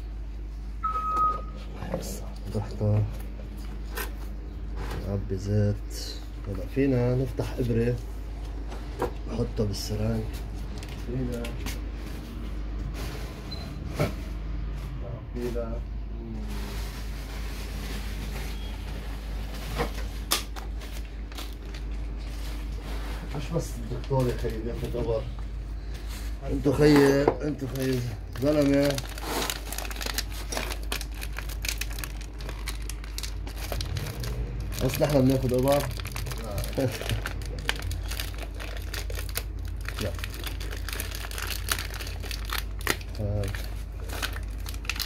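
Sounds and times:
steady low hum: 0.0 - 45.0
plastic sheet crinkling: 16.4 - 24.7, 27.4 - 45.0.

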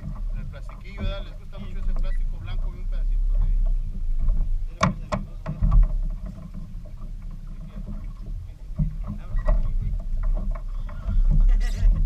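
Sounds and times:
boat low rumble: 0.0 - 12.0
sharp knocks: 3.6 - 7.0.

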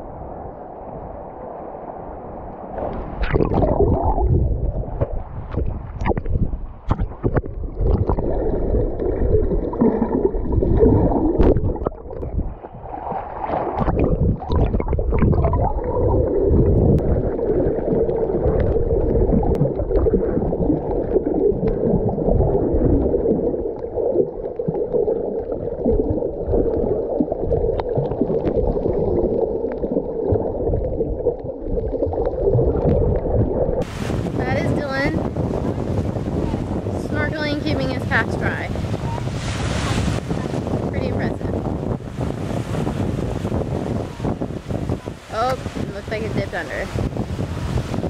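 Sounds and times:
muffled underwater rush: 0.0 - 48.0
water sloshing and gurgling: 0.0 - 48.0
splashes and knocks: 9.1 - 15.8.

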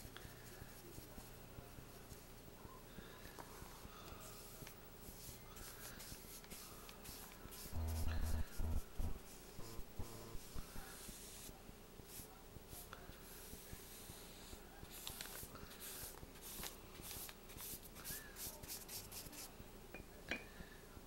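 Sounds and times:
paintbrush swishing on paper: 3.5 - 19.5.

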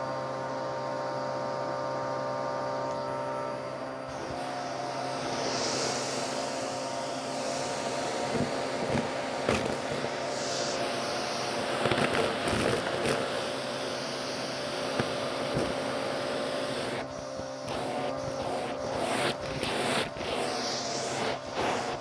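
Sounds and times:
vacuum cleaner motor whine: 0.0 - 22.0
debris crackling in vacuum hose: 8.2 - 13.4.

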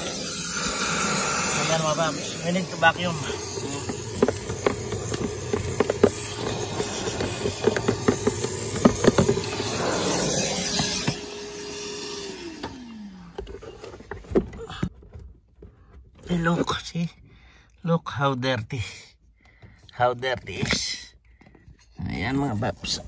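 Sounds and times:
vacuum cleaner running: 0.0 - 14.5.

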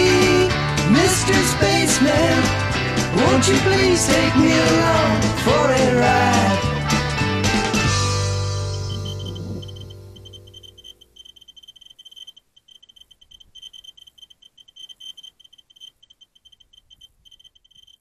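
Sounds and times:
stuttering high-pitched electronic tone: 8.8 - 14.0.

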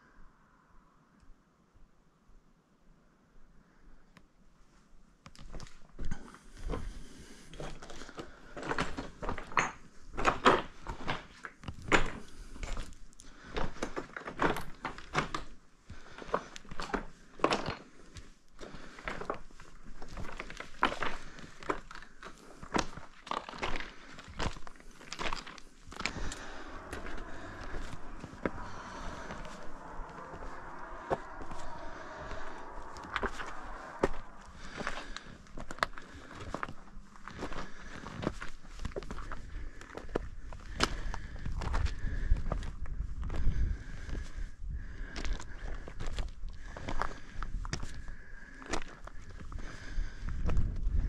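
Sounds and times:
footsteps on rough trail: 18.1 - 44.4, 45.0 - 51.0.

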